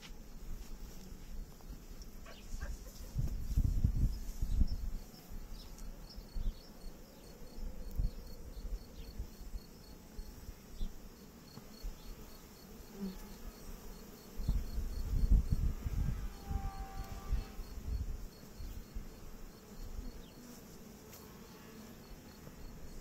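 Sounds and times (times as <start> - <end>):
honeybees buzzing: 0.0 - 23.0.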